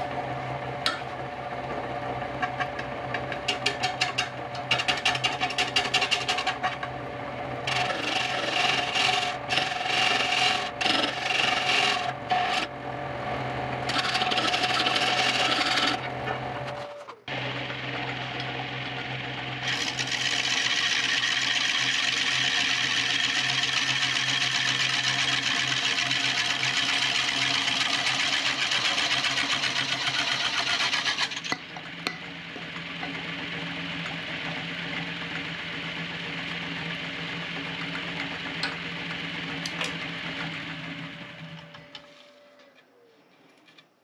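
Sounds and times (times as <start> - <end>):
wood lathe humming: 0.0 - 42.7
turning tool cutting wood hiss: 26.5 - 31.6.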